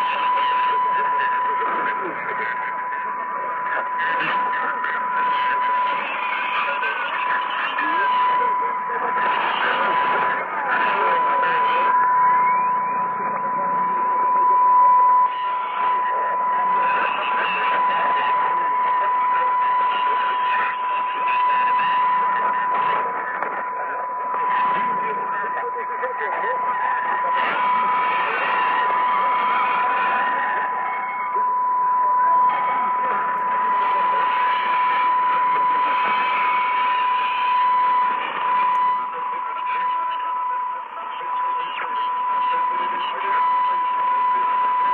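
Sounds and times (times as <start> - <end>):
faint voice on radio: 0.0 - 44.9
radio static hiss: 0.0 - 44.9
steady whistle tone: 0.0 - 44.9
steady high whistle: 3.1 - 23.2.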